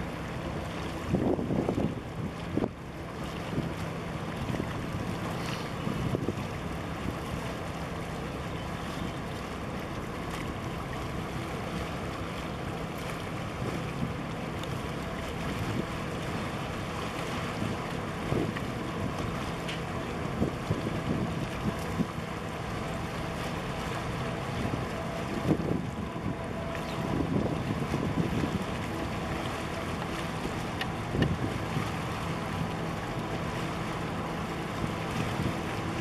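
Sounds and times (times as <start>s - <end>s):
steady low drone: 0.0s - 36.0s
waves splashing against concrete: 0.0s - 36.0s
wind buffeting microphone: 0.6s - 7.8s, 15.2s - 36.0s.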